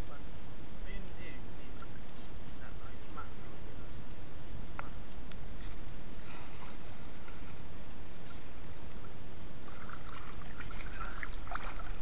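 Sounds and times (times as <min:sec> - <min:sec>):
muffled underwater water rush: 0:05.7 - 0:12.0.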